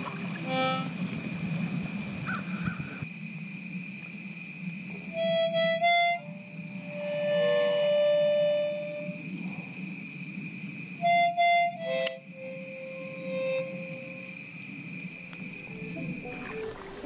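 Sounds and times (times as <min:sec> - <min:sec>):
harmonica playing: 0:00.4 - 0:00.9, 0:05.1 - 0:09.2, 0:11.0 - 0:14.4, 0:15.7 - 0:17.0.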